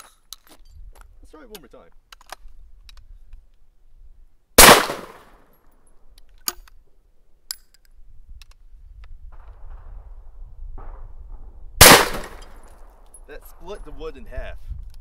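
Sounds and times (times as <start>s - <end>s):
shotgun blast: 4.6s - 5.3s, 11.8s - 12.6s.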